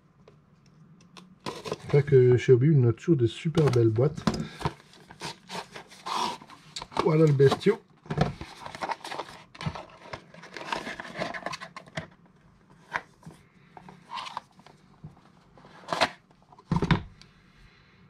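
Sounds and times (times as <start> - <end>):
packaging rustling: 3.6 - 12.1.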